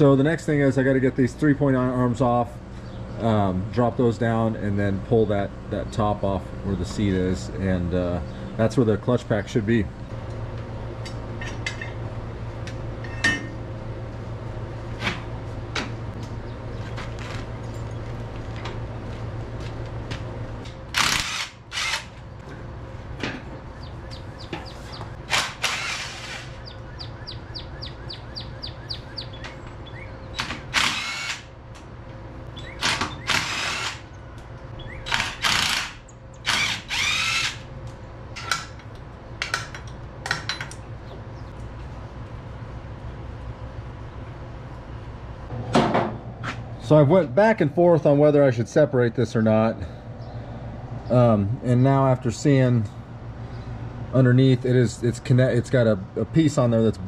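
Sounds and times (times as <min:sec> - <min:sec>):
steady low hum: 0:00.0 - 0:57.0
power tool bursts: 0:20.9 - 0:22.1, 0:25.3 - 0:26.6, 0:30.7 - 0:31.5, 0:32.8 - 0:34.1, 0:35.0 - 0:37.6.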